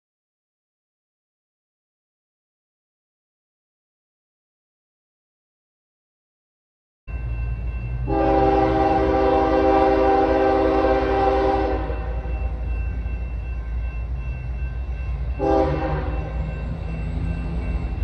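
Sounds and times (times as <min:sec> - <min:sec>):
locomotive air horn blasts: 0:08.1 - 0:12.3, 0:15.4 - 0:16.4.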